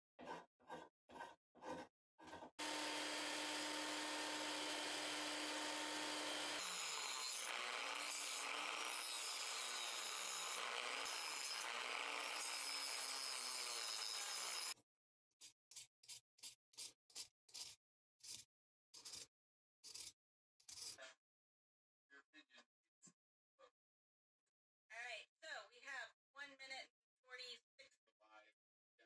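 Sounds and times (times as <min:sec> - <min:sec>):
hand saw cutting wood: 0:00.2 - 0:14.8
rotary tool whining: 0:02.6 - 0:13.0.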